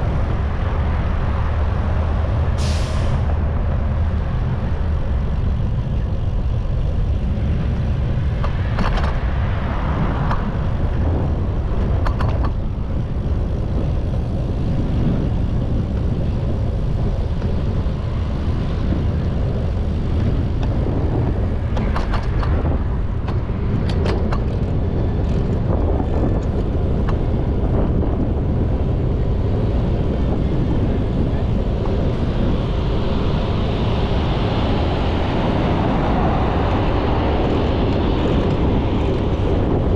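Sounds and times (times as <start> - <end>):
city traffic noise: 0.0 - 39.9
wind rushing: 0.0 - 39.9.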